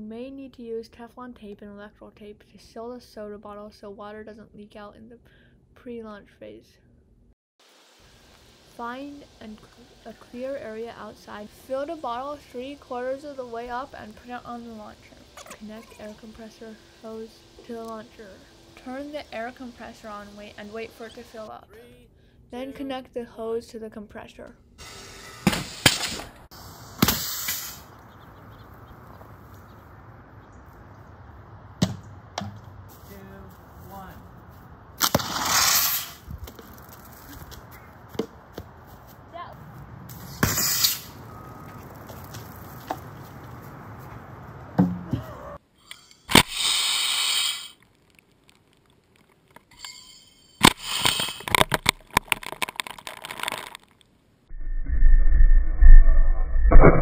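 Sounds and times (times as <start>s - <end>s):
short hiss of air: 24.8s - 27.9s, 35.0s - 36.3s, 40.2s - 41.2s, 45.8s - 47.8s, 50.6s - 51.5s
bottle rocket blasting off: 26.9s - 27.9s, 35.0s - 36.3s, 40.3s - 41.2s, 46.3s - 47.8s, 50.6s - 51.6s.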